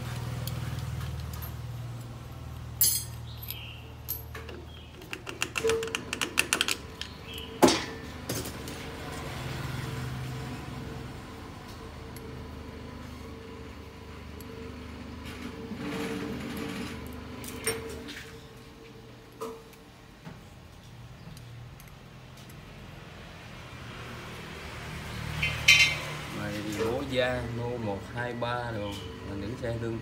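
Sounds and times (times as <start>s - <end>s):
metal parts clicking and clinking: 0.4s - 8.5s.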